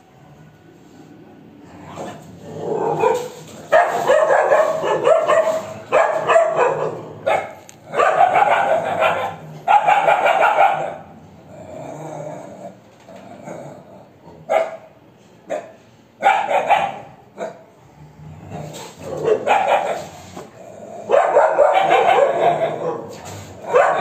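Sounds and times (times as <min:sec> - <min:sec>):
dogs barking in a fight: 0:02.7 - 0:11.2, 0:14.4 - 0:14.9, 0:15.5 - 0:17.7, 0:18.7 - 0:24.0.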